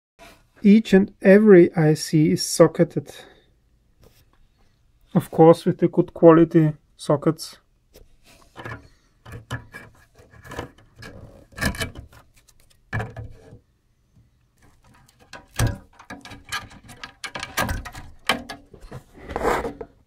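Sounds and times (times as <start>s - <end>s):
plastic rubbing: 8.0s - 13.6s, 14.2s - 20.0s
plastic plugs clicking and knocking: 8.6s - 13.6s, 14.6s - 18.9s.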